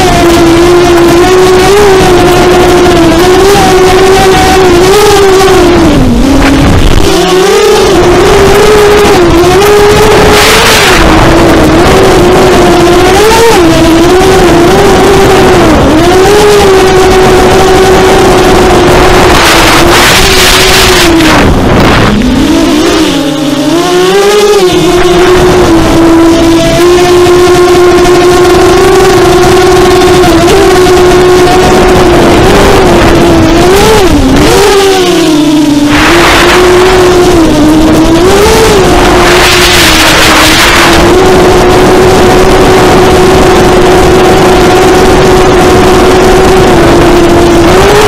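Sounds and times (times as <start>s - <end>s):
drone motors whining: 0.0s - 48.0s
short rushes of noise: 18.9s - 26.5s, 33.8s - 41.2s.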